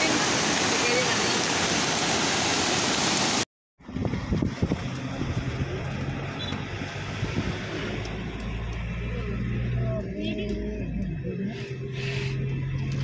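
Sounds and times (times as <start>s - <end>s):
river rushing: 0.0s - 3.4s
wind buffeting microphone: 3.8s - 5.6s.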